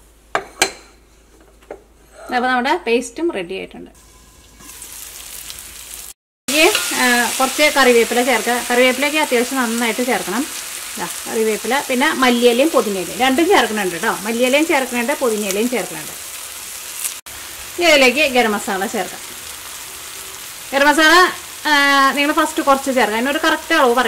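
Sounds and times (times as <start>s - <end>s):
spatula scraping wok: 4.0s - 14.2s
food sizzling in a wok: 4.0s - 24.0s.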